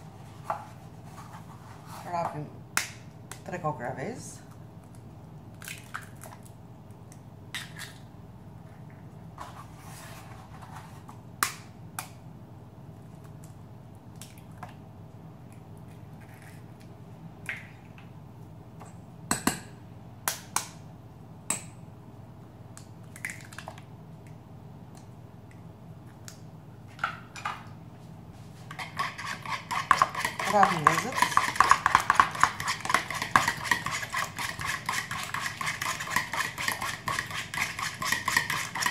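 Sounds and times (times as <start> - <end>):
eggs cracking over a bowl: 22.7 - 24.4, 28.7 - 38.9.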